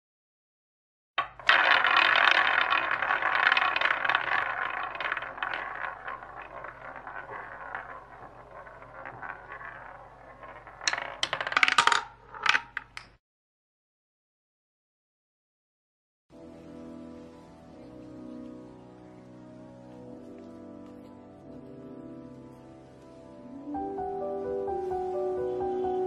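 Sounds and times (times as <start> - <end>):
coin spinning on hard surface: 1.2 - 13.1.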